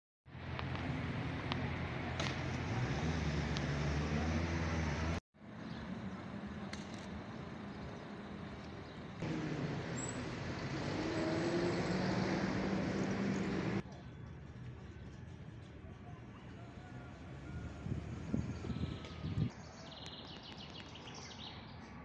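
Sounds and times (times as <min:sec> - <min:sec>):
car engines passing: 0:00.3 - 0:13.8.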